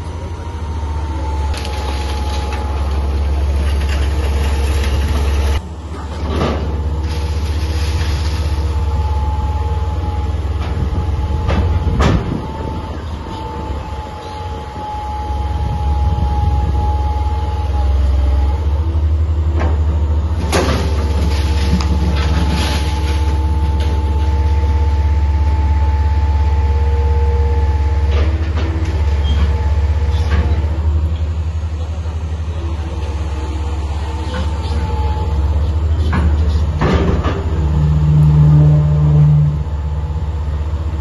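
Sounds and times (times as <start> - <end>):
excavator engine rumble: 0.0 - 41.0
concrete breaking and debris falling: 1.5 - 5.6, 20.4 - 24.3.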